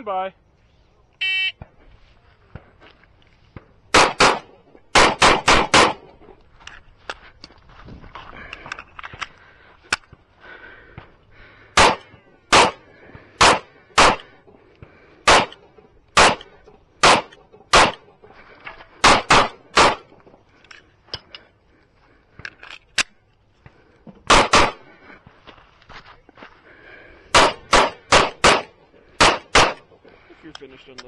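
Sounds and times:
pistol shots: 0:03.9 - 0:06.2, 0:11.8 - 0:14.4, 0:15.2 - 0:18.1, 0:19.0 - 0:20.1, 0:24.3 - 0:24.9, 0:27.3 - 0:30.0.

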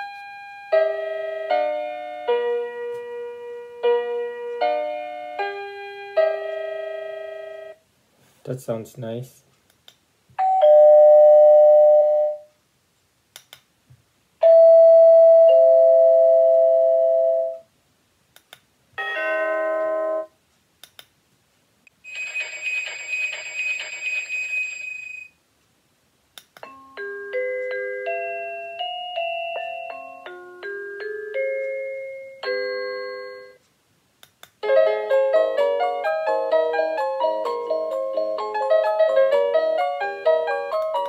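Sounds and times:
doorbell chime tunes: 0:10.4 - 0:12.5, 0:14.4 - 0:17.6, 0:19.0 - 0:20.3, 0:26.7 - 0:33.6.

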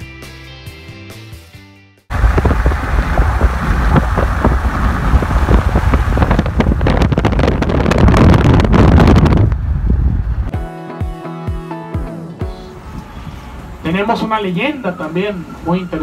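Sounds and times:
car road rumble: 0:02.1 - 0:10.5
wind rush on microphone: 0:02.1 - 0:10.5.

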